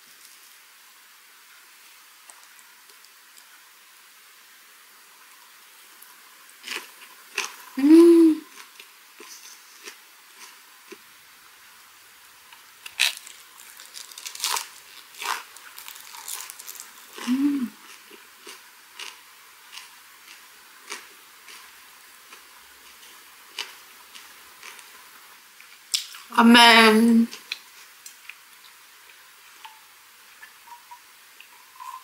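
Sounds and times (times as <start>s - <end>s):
chewing with soft crunches: 5.8s - 7.8s, 8.5s - 11.1s, 12.5s - 26.3s, 27.3s - 32.0s
closed-mouth hum: 7.8s - 8.5s, 17.2s - 17.8s.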